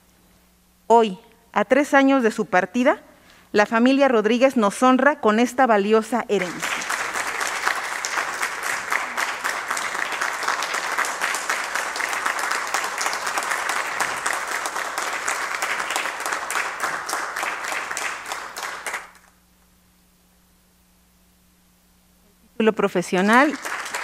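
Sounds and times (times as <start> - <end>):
faint low hum: 0.0 - 24.0
people applauding: 6.3 - 19.4, 23.2 - 24.0.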